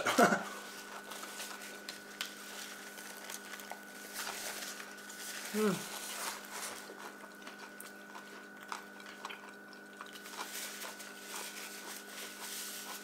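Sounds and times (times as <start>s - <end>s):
faint electrical hum: 0.0s - 13.0s
person chewing with wet smacks: 5.8s - 13.0s.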